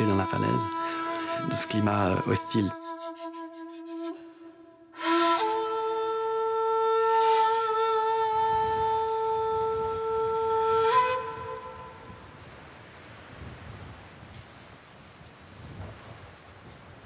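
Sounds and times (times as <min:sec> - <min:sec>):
flute-like wind instrument: 0:00.0 - 0:12.3.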